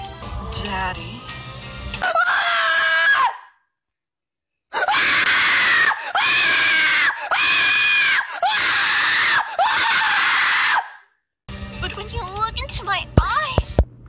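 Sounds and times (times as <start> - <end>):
harsh screams: 2.0 - 3.6, 4.7 - 11.1.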